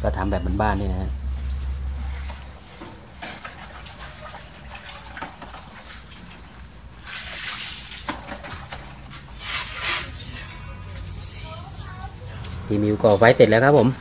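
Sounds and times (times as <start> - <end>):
sticks and charcoal clicking on grate: 12.6 - 14.0.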